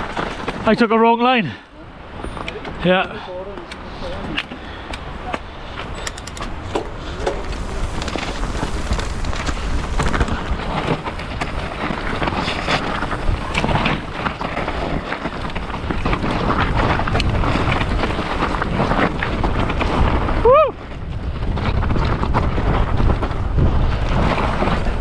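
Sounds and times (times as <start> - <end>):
low rumble of tyres: 4.6 - 25.0
wind on microphone: 4.8 - 25.0
bike knocks and rattles: 5.8 - 20.3.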